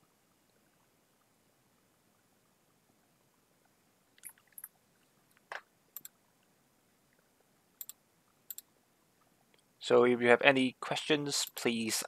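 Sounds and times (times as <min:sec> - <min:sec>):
sharp computer clicks: 0:07.8 - 0:08.7.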